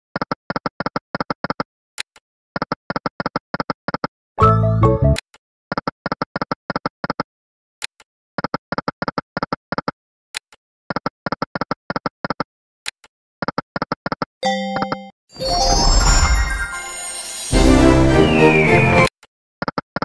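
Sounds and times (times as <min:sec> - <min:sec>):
pitched win tune: 0:14.4 - 0:19.1.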